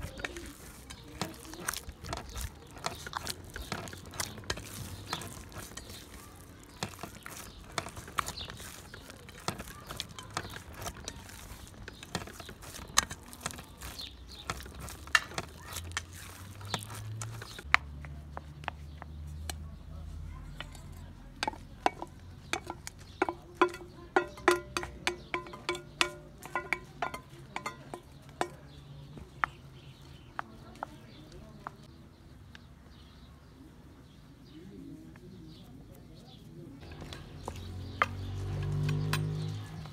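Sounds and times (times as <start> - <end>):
hands kneading dough in a bowl: 0.0 - 32.0
spoon scraping and knocking metal bowl: 21.4 - 28.6.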